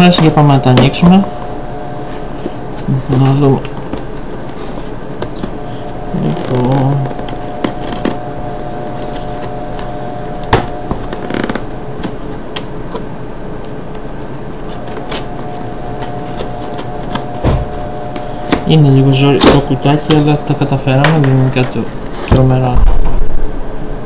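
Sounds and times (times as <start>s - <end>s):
steady background hum: 0.0s - 24.0s
cardboard packaging clicks and scrapes: 1.9s - 8.3s, 8.9s - 13.1s, 14.7s - 18.8s.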